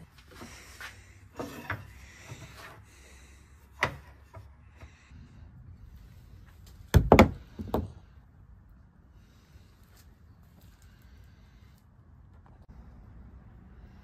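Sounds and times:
thumps and clanks: 0:06.8 - 0:08.0.

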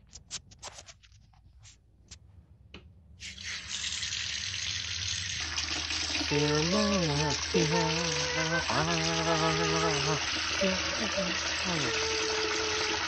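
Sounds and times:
hose running water into bucket: 0:03.2 - 0:13.0.

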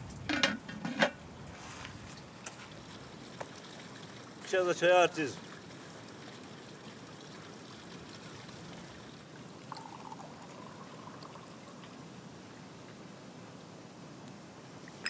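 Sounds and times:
tea pouring into glass: 0:05.2 - 0:12.1.

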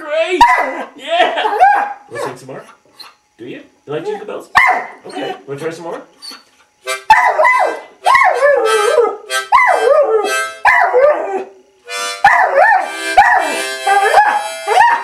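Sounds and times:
dog howling: 0:00.4 - 0:02.4, 0:04.6 - 0:05.5, 0:07.1 - 0:11.6, 0:12.2 - 0:15.0
blues harmonica chords: 0:04.8 - 0:15.0.

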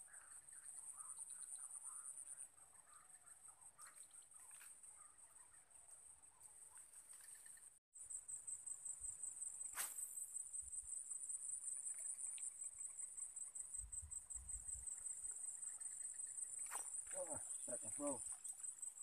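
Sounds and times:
insects trilling: 0:07.2 - 0:19.0
fishing rod cast swish: 0:09.7 - 0:10.2.

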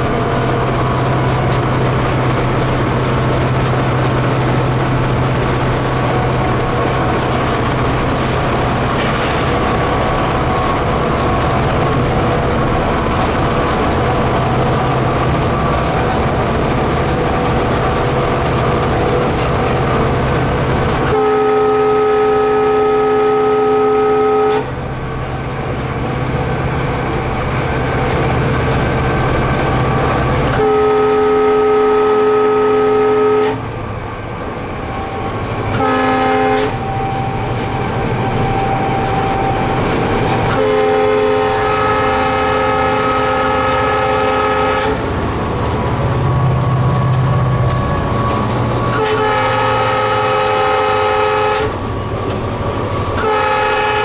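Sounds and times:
locomotive engine and rail noise: 0:00.0 - 0:54.0
multi-tone air horn: 0:21.0 - 0:24.7, 0:30.5 - 0:33.6, 0:35.7 - 0:37.3, 0:40.5 - 0:45.1, 0:48.9 - 0:51.8, 0:53.2 - 0:54.0.

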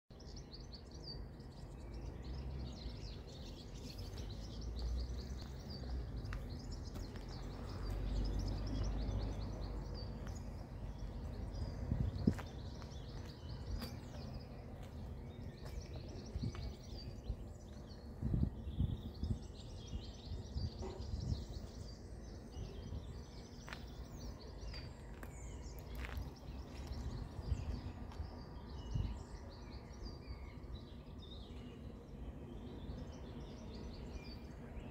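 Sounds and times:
small birds chirping: 0:00.1 - 0:34.9
steady low rumble: 0:02.3 - 0:29.4.

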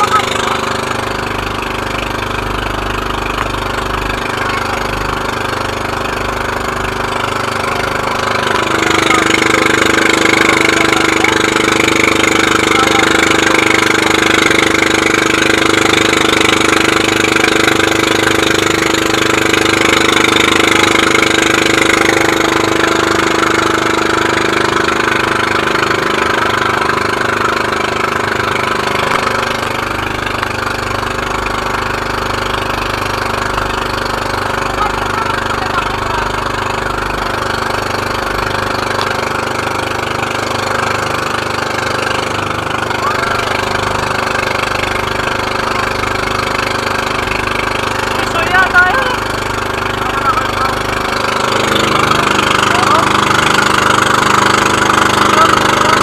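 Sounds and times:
motorboat engine running: 0:00.0 - 0:56.0.

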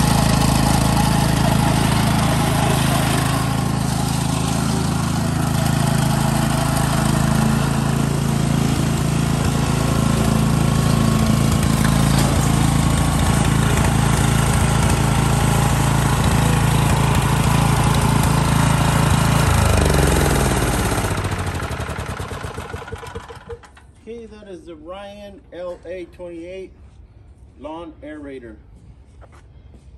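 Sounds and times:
gasoline engine running: 0:00.0 - 0:23.8.

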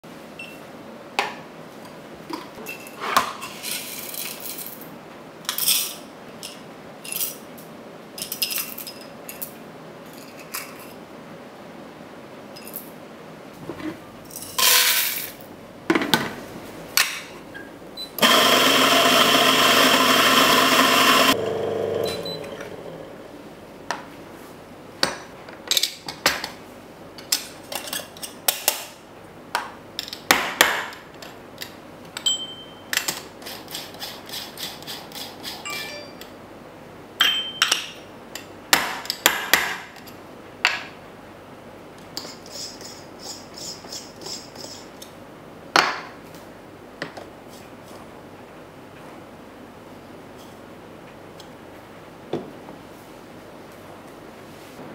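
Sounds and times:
coffee grinder running: 0:18.2 - 0:23.2.

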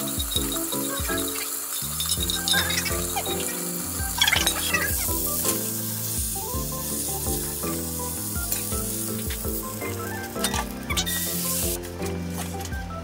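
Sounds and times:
food sizzling in a frying pan: 0:00.0 - 0:12.6
background music: 0:00.0 - 0:13.0.

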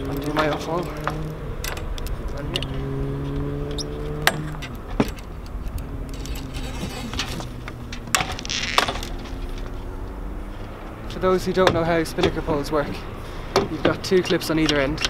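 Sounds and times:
short rustle: 0:05.4 - 0:10.8.

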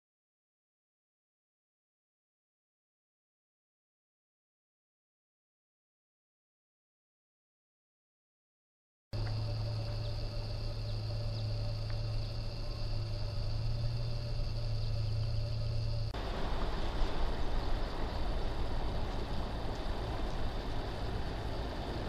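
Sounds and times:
drone motors humming: 0:09.2 - 0:22.0.

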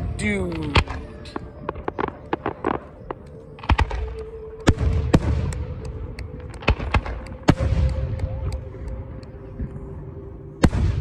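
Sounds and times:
low rumbling echo: 0:00.0 - 0:11.0
fireworks bangs and pops: 0:00.5 - 0:08.6.

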